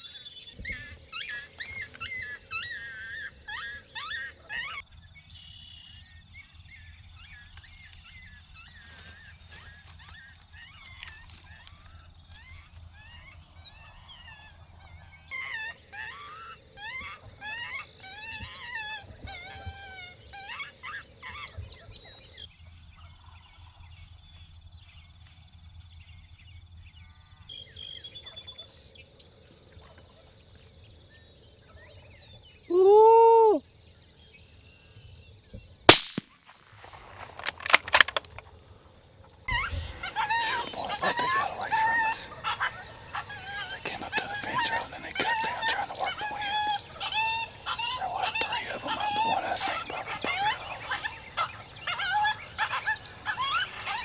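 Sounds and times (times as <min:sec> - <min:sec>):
birds chirping: 0:00.0 - 0:54.0
rifle shot: 0:35.9 - 0:38.4
sharp cracks: 0:35.9 - 0:38.5.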